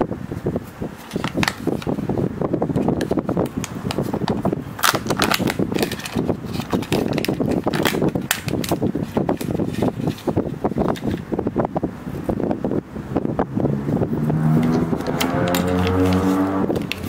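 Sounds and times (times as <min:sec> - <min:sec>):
plastic crinkling and crackling: 0:03.0 - 0:11.2
low rushing noise: 0:11.3 - 0:17.0.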